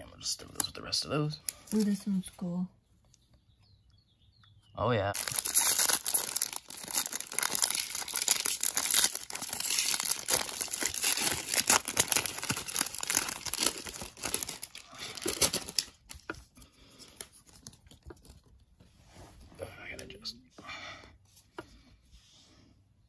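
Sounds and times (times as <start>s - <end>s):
foil wrapper crinkling: 5.2s - 16.3s.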